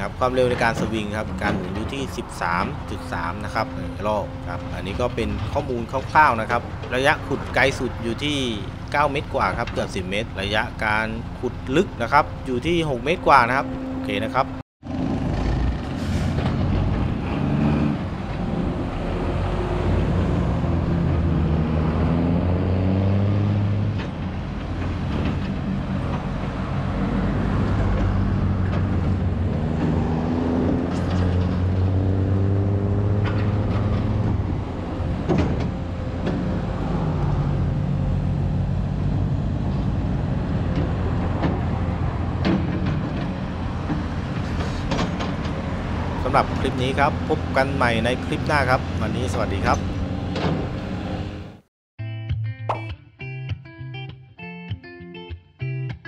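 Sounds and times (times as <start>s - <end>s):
excavator diesel engine: 0.0s - 51.6s.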